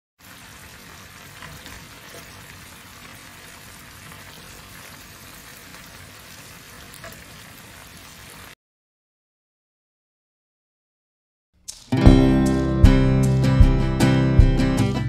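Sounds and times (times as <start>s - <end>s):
meat sizzling in a frying pan: 0.2s - 8.5s.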